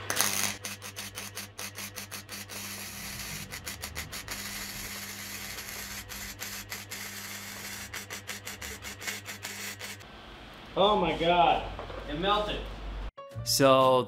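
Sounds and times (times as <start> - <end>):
welding arc crackling: 0.0 - 10.1.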